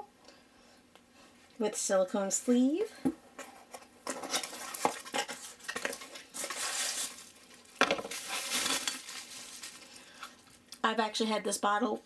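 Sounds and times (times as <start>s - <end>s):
bubble wrap and cardboard crinkling: 3.4s - 10.7s.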